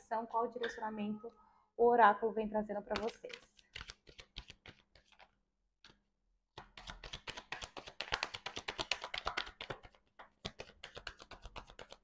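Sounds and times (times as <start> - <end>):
cards being shuffled: 2.9 - 6.0, 6.6 - 12.0.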